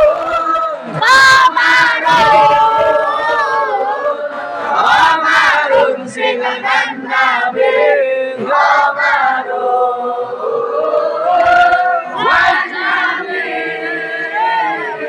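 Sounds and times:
crowd singing religious song: 0.0 - 15.0.

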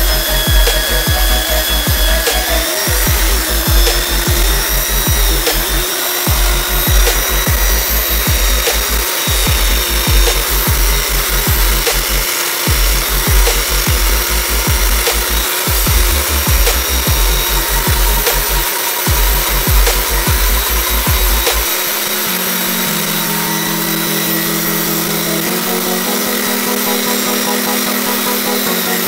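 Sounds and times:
music with bass beat: 0.0 - 22.3
belt sander sanding wood: 0.0 - 29.0.

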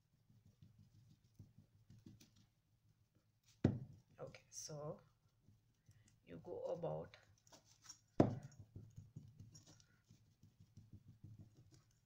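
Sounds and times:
sponge patting paint on vase: 0.0 - 5.8, 7.5 - 12.0.

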